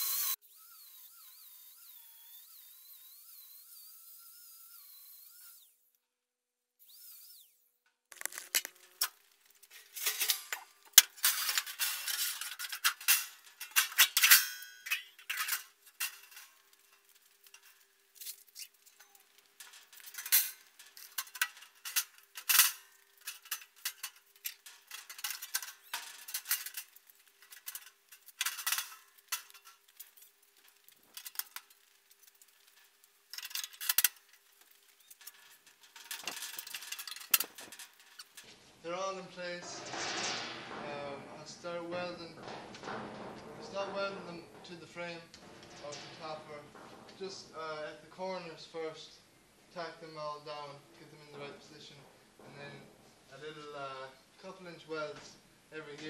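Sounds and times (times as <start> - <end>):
steel sheets clanking and scraping: 8.1 - 38.6, 39.4 - 48.3.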